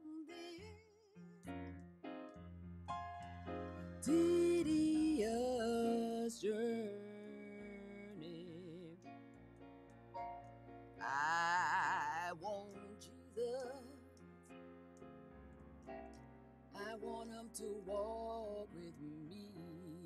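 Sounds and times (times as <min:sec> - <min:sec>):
woman singing gospel song: 0:00.0 - 0:00.9, 0:04.0 - 0:09.0, 0:11.0 - 0:14.0, 0:16.8 - 0:20.0
electric piano chords: 0:01.4 - 0:20.0.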